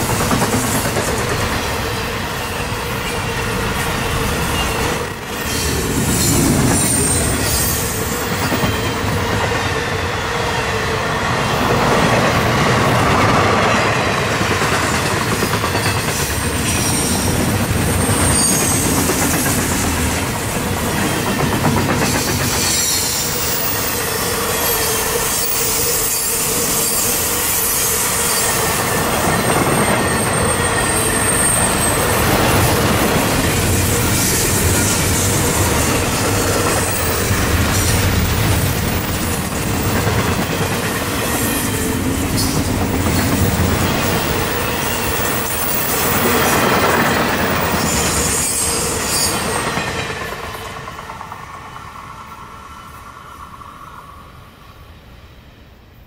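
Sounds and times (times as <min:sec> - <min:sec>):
steel wheels rushing on rail: 0:00.0 - 0:56.0
high wheel squeal: 0:02.0 - 0:09.2, 0:15.8 - 0:19.8, 0:22.0 - 0:38.1, 0:43.3 - 0:50.0
high-pitched wheel squeal: 0:02.4 - 0:09.0.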